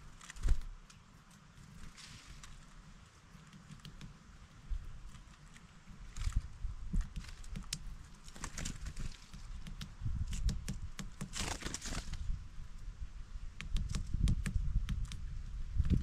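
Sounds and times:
bird pecking on wooden tray: 7.0s - 11.3s.

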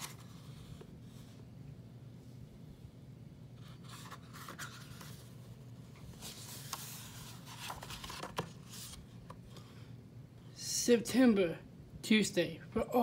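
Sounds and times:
book pages rustling: 0.0s - 1.3s, 3.6s - 9.6s
faint steady hum: 0.0s - 13.0s.

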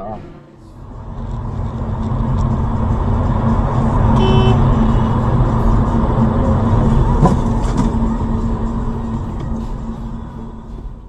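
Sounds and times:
car road noise rumble: 0.0s - 11.0s
short tone: 4.2s - 5.1s.

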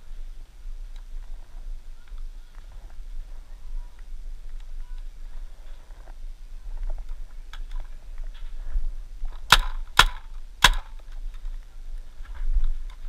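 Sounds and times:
paintball marker shots: 9.5s - 11.0s.

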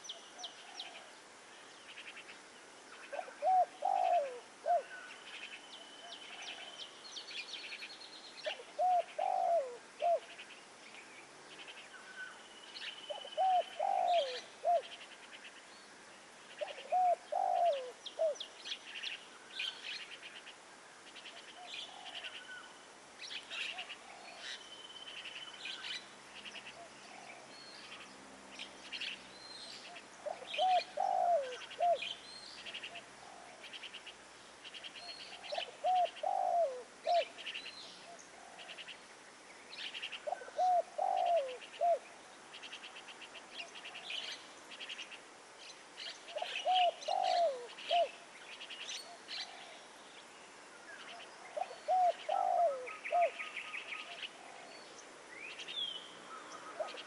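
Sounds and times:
small birds chirping and trilling: 0.0s - 57.0s
dove cooing: 3.1s - 5.1s, 8.4s - 10.4s, 13.1s - 15.0s, 16.6s - 18.4s, 29.9s - 33.8s, 35.0s - 38.9s, 40.2s - 42.1s, 46.3s - 48.2s, 51.4s - 54.9s, 56.3s - 57.0s.

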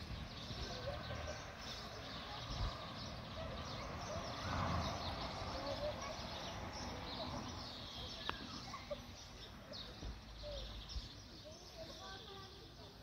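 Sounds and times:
birds chirping faintly: 0.0s - 13.0s.

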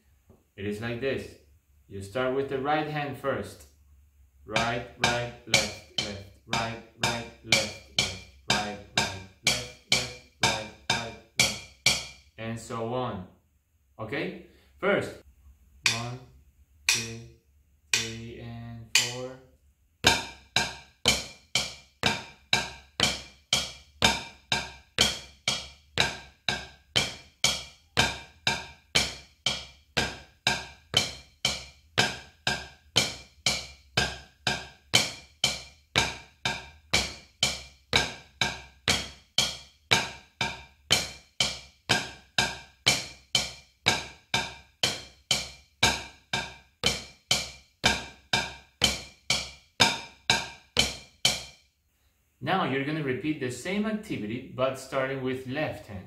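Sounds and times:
drumsticks tapping a practice pad: 4.5s - 12.4s, 15.8s - 17.3s, 17.9s - 19.4s, 20.0s - 51.6s.

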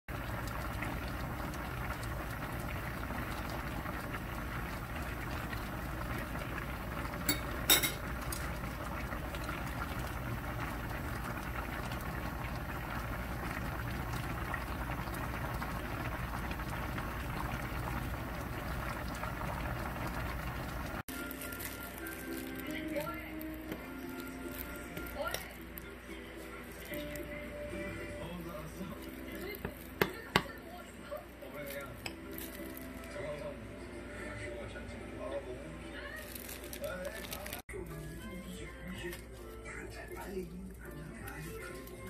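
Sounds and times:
stew bubbling in a pan: 0.1s - 33.3s
metal spoon clinking: 7.3s - 8.1s.

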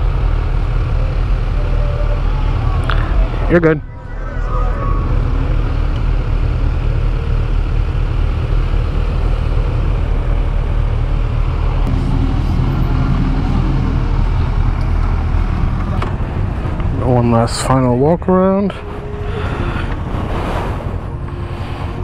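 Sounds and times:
rushing noise: 0.0s - 18.0s, 18.6s - 22.0s
motorcycle engine running: 5.1s - 16.8s.

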